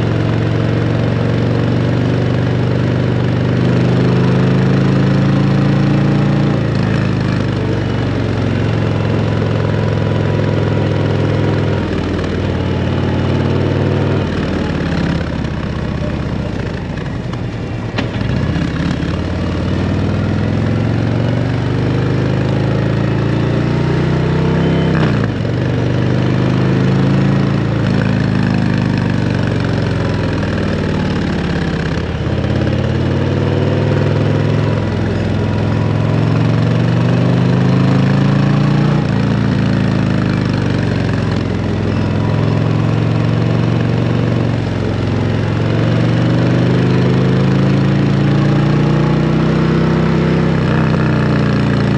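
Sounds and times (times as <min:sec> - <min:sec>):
motorcycle engine revving: 0:00.0 - 0:51.9.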